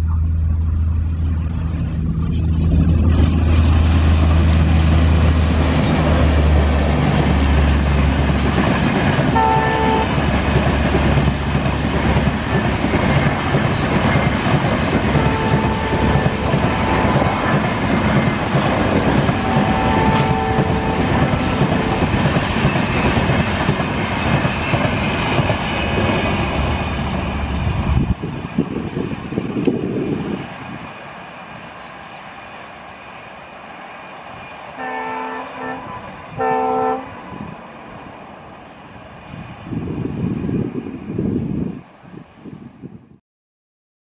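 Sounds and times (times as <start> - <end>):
diesel locomotive engine rumble: 0.0 - 43.2
train wheels clickety-clack on rails: 3.0 - 38.4
train horn blasts: 9.3 - 10.3, 15.0 - 17.6, 18.9 - 22.3, 34.7 - 38.6.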